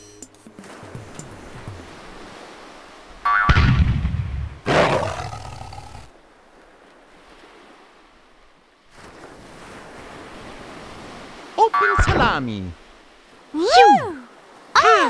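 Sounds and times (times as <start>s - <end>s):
tiger roaring: 4.7s - 6.1s.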